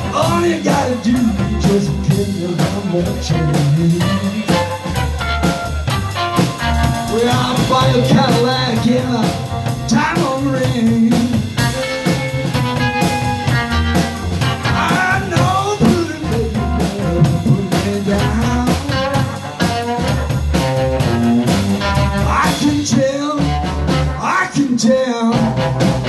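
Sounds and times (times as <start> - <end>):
person singing lead vocal: 0.0 - 5.1, 7.0 - 11.7, 14.6 - 20.2, 22.2 - 25.7
double bass: 0.0 - 26.0
drum kit: 0.0 - 26.0
electric guitar: 0.0 - 26.0.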